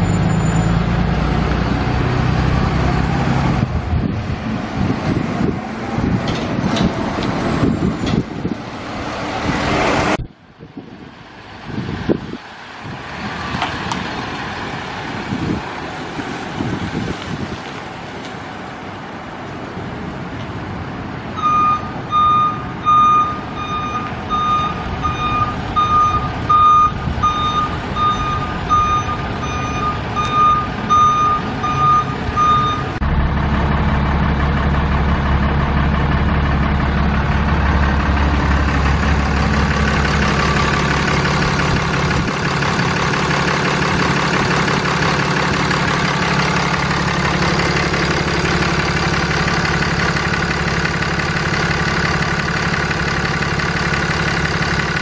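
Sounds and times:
diesel truck engine running: 0.0 - 55.0
backup alarm beeping: 21.4 - 33.0.

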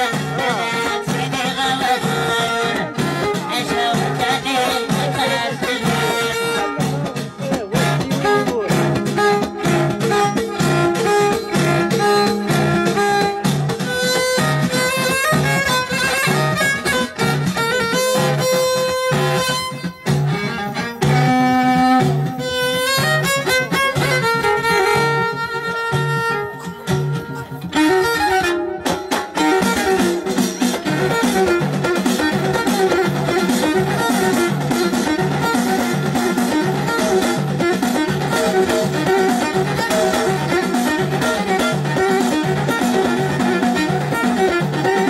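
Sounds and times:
frame drums beating: 0.0 - 28.1, 28.9 - 45.0
plucked lutes: 0.0 - 45.0
violin melody: 0.0 - 45.0.

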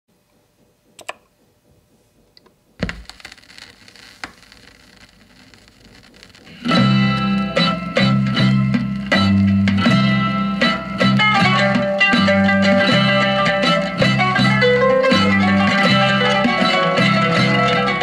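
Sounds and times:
vinyl surface crackle and clicks: 2.4 - 9.6
stylus thump on record: 2.8 - 4.8
plucked-string instrumental music: 6.5 - 18.0.

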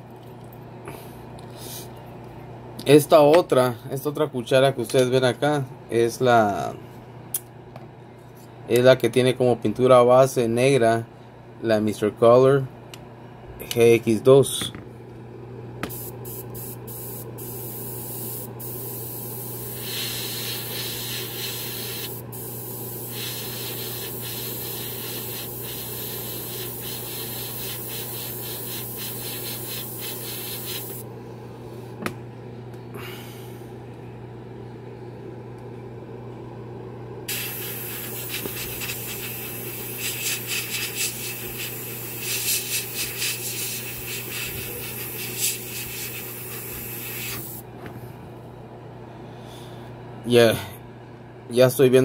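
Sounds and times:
steady low hum: 0.0 - 52.0
airbrush hissing: 15.9 - 31.0, 37.3 - 47.6.

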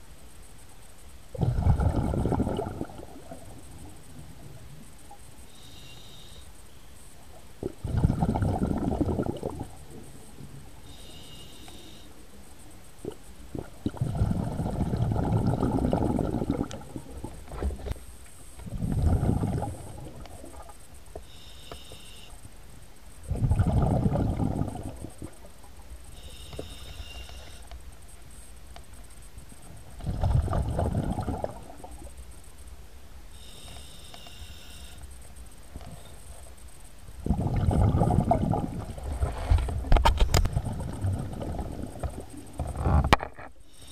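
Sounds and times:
exhaled bubbles rushing: 1.4 - 3.5, 7.6 - 9.8, 13.5 - 17.9, 18.6 - 20.7, 23.3 - 25.4, 30.0 - 31.9, 37.2 - 42.8
regulator inhalation hiss: 5.2 - 7.1, 10.6 - 12.6, 20.4 - 22.8, 26.0 - 28.1, 33.3 - 37.4, 43.6 - 43.9.

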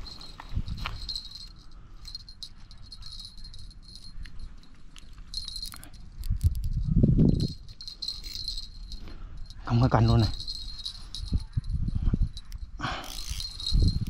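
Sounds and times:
fishing rod handling rumble: 0.0 - 14.0
fishing reel drag clicking: 7.4 - 9.6, 12.3 - 14.0.

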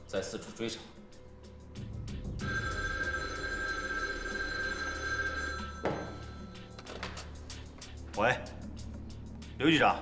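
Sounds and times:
telephone bell ringing: 2.3 - 6.8.

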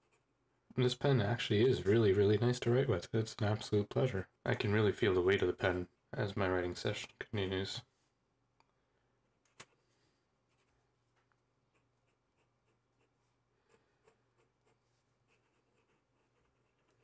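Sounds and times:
pen nib scratching on paper: 11.7 - 17.0.

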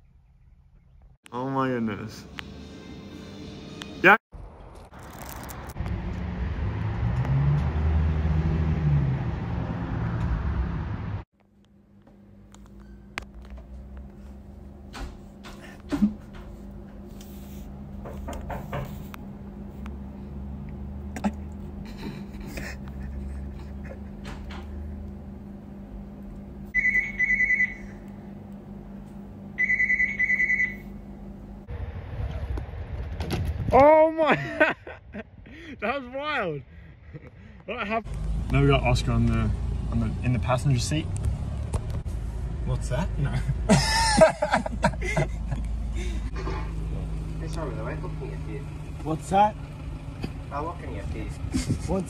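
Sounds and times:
traffic noise: 1.3 - 11.3, 16.0 - 33.7, 37.2 - 52.0
vehicle engine passing: 5.2 - 11.2, 38.0 - 43.7, 45.0 - 52.0
idling car hum: 11.7 - 32.1, 34.5 - 52.0
telephone ringing: 26.8 - 27.8, 29.6 - 30.8.

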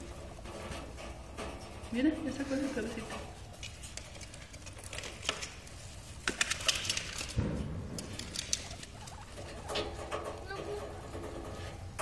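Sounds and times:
guinea pig rustling in hay: 1.9 - 7.1.

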